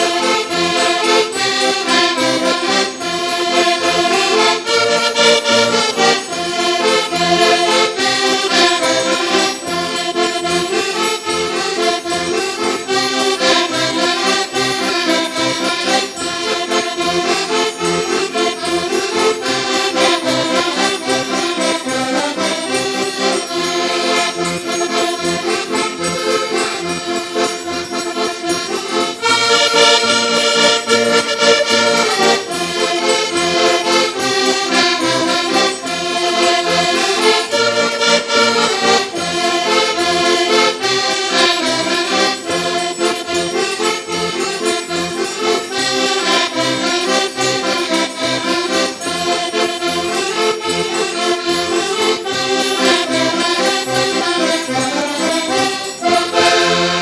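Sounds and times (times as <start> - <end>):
accordions playing lively tune: 0.0 - 57.0.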